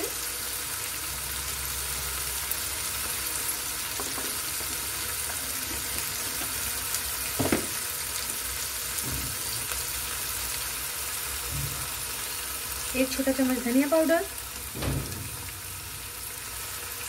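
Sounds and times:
paste sizzling in oil: 0.0 - 17.0
dull knock: 7.4 - 7.7.

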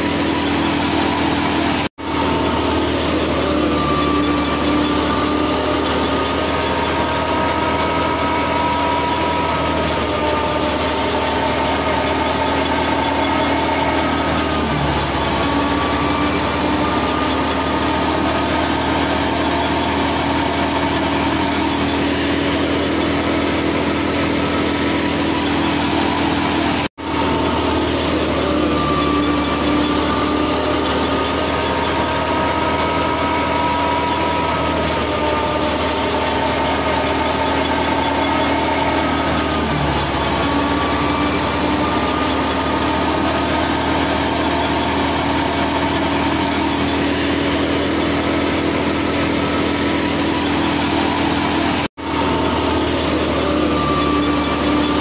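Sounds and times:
high whine from belt-driven drum: 0.0 - 55.0
motor hum: 0.0 - 55.0.

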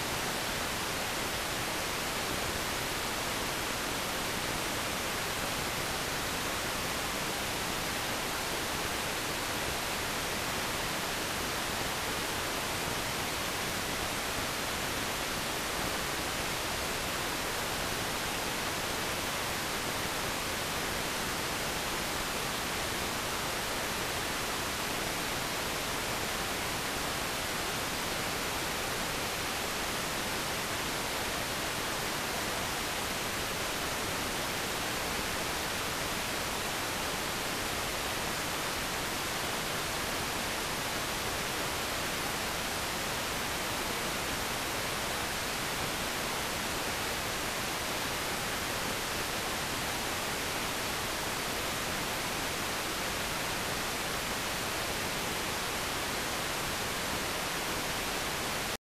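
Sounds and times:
tv static hiss: 0.0 - 58.8.

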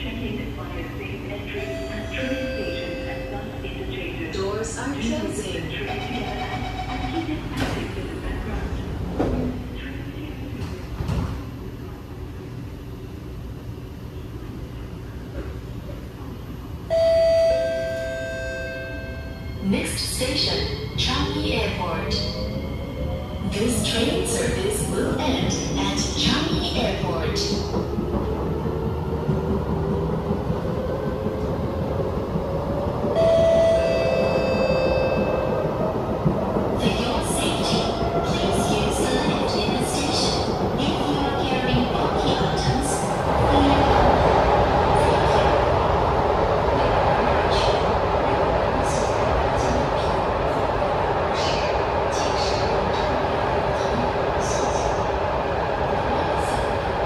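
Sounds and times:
train cabin rumble: 19.6 - 57.0.

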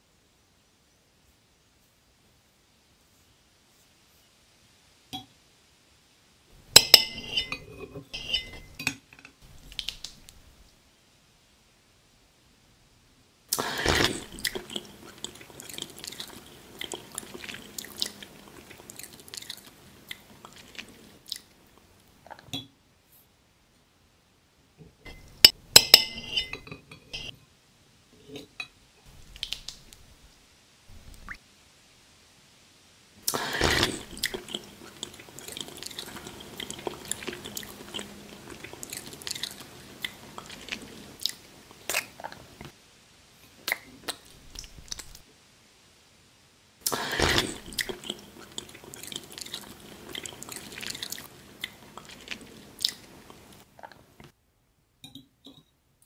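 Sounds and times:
fork and knife clinking on plate: 6.8 - 9.0, 25.1 - 27.4.

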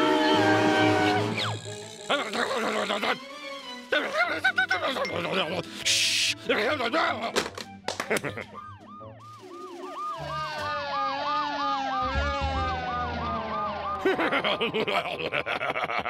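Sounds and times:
gleeful laughing: 2.1 - 5.8, 6.4 - 7.4, 8.0 - 8.6, 13.9 - 16.0
cartoon siren wailing: 8.4 - 15.6.

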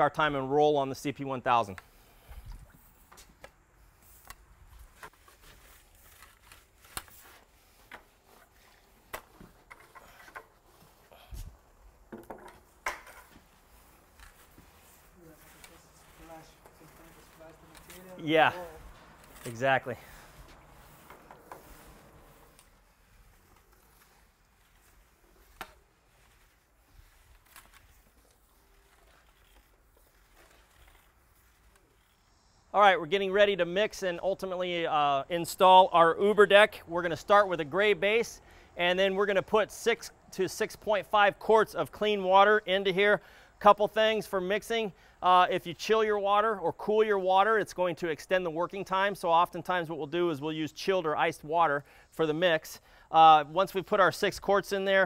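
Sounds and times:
faint background hiss: 0.0 - 55.0
paint roller rubbing: 3.8 - 32.3.

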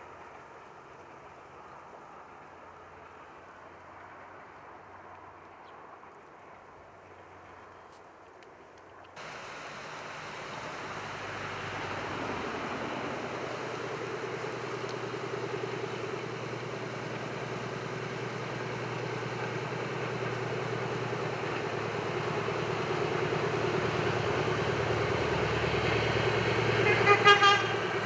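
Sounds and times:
diesel locomotive engine running: 9.2 - 28.0
mountain stream rushing: 9.2 - 28.0.

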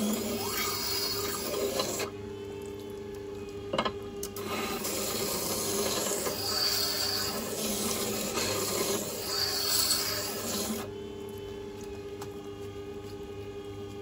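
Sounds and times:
blade grinding on wet stone: 0.0 - 2.1, 4.4 - 10.9.

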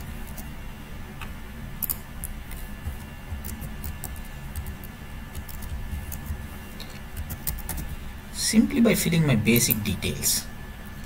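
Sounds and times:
low steady hum: 0.0 - 11.0
keyboard typing: 1.8 - 6.4, 7.1 - 7.9.

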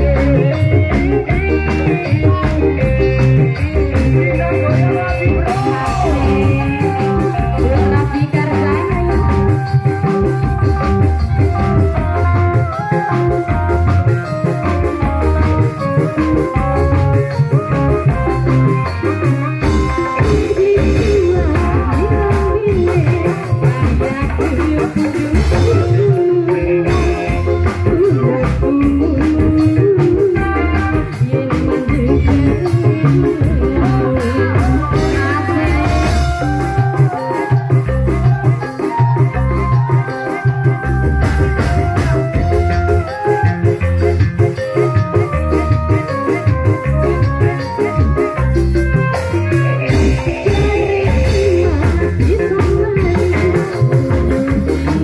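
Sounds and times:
woman singing into microphone: 0.0 - 10.8, 17.6 - 43.5, 49.2 - 55.0
drums keeping steady beat: 0.0 - 55.0
melodic line: 0.0 - 55.0.

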